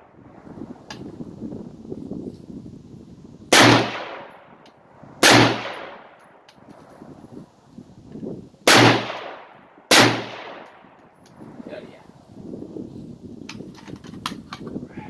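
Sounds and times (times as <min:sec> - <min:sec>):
rifle shots with echo: 0:03.5 - 0:04.5, 0:05.2 - 0:06.4, 0:08.7 - 0:11.0.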